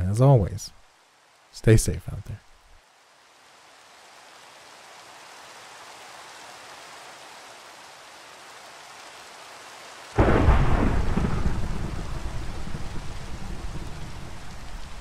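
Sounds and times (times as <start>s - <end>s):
steady rain hiss: 0.0s - 15.0s
loud thunderclap: 10.2s - 15.0s.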